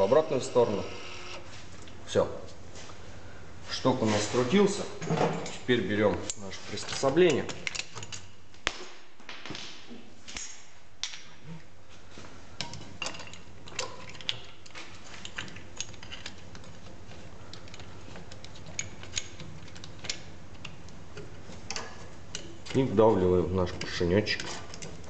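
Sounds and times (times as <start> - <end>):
low background hum: 0.0 - 25.0
metal tool parts clinking: 6.3 - 8.3.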